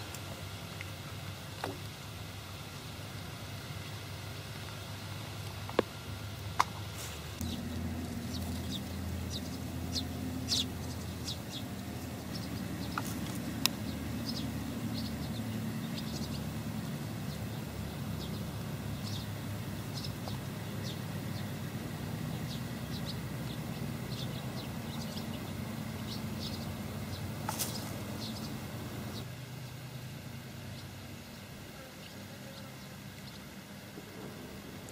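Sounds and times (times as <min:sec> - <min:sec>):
small birds chirping: 0:06.6 - 0:29.8, 0:30.6 - 0:33.6
low rumble: 0:07.3 - 0:29.3.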